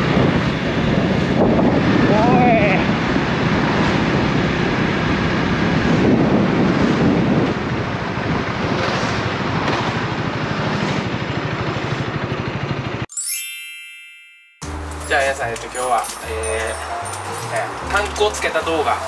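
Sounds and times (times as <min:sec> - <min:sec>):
wind noise on microphone: 0:00.0 - 0:09.9
motorcycle engine running: 0:00.0 - 0:13.0.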